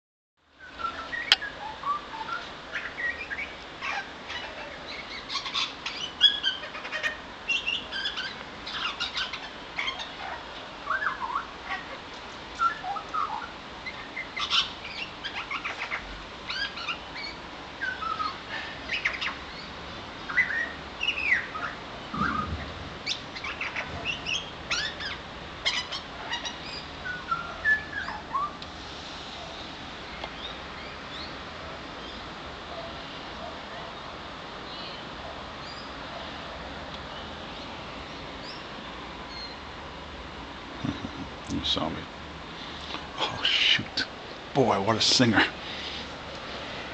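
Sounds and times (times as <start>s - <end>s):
butcherbird singing whistled notes: 0.6s - 3.5s, 12.6s - 13.5s, 20.3s - 25.1s.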